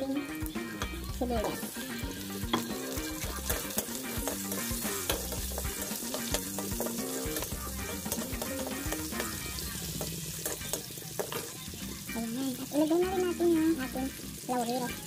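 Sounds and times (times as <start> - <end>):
garlic and onion sizzling in oil: 0.0 - 15.0
metal tongs clicking and scraping pan: 0.4 - 11.6.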